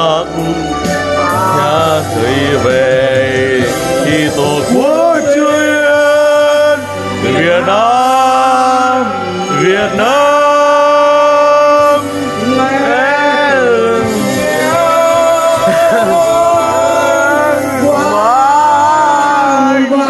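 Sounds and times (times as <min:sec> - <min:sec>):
person singing long swooping notes: 0:00.0 - 0:20.0
steady low drone: 0:00.6 - 0:05.6.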